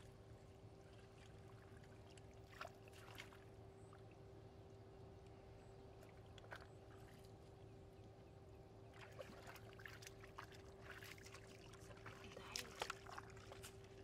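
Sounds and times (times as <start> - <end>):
boots squelching in mud and water: 0.9 - 3.4, 9.0 - 14.0.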